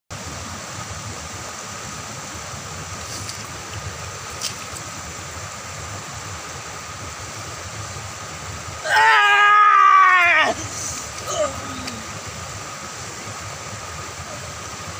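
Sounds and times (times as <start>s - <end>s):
water rushing over weir: 0.2s - 14.9s
person wailing: 8.8s - 12.2s.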